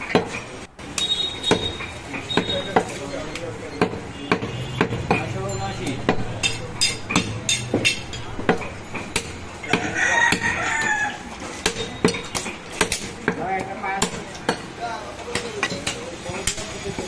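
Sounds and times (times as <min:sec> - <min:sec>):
cleaver chopping meat and bone: 0:03.8 - 0:11.0, 0:11.6 - 0:14.7
rooster crowing: 0:09.6 - 0:11.3.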